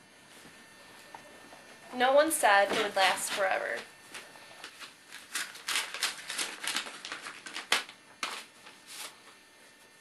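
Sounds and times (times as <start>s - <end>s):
paper rustling: 4.1s - 9.2s
paper envelope tearing: 4.6s - 9.2s.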